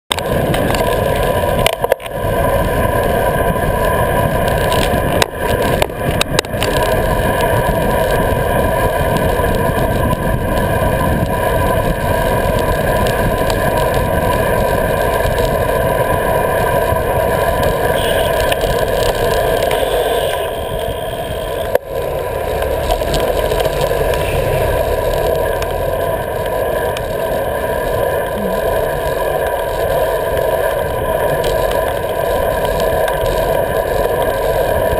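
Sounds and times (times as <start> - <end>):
tyre noise on asphalt: 0.1 - 34.9
wind rushing over camera: 0.1 - 34.9.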